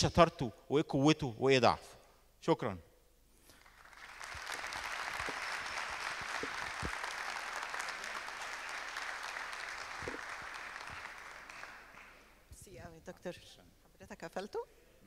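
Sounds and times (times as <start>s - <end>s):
audience applauding: 3.5s - 12.3s.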